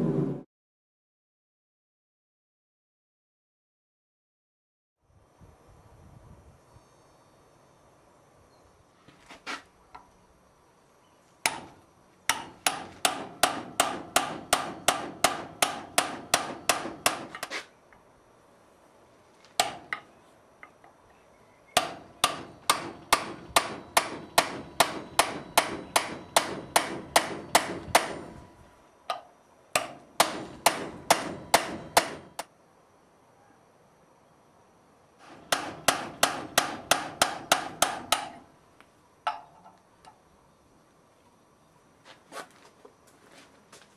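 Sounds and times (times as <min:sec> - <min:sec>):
hammer striking chisel on steel: 0:11.4 - 0:17.6, 0:19.6 - 0:20.8, 0:21.8 - 0:28.4, 0:29.1 - 0:32.5, 0:35.2 - 0:38.4.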